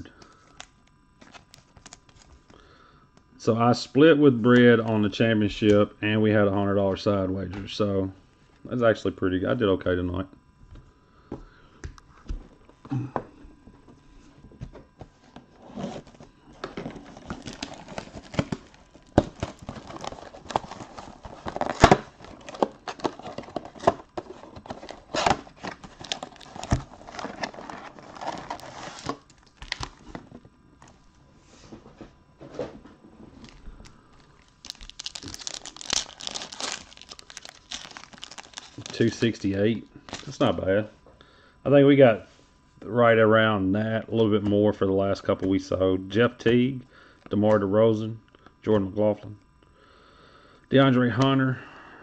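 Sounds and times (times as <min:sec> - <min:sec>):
plastic wrap crinkling: 0:15.6 - 0:31.0, 0:33.3 - 0:40.5
cardboard box tearing: 0:16.8 - 0:29.8, 0:34.9 - 0:38.9.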